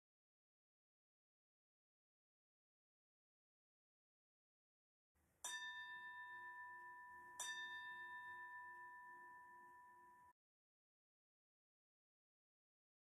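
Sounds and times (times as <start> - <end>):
singing bowl bell ringing: 5.4 - 10.4.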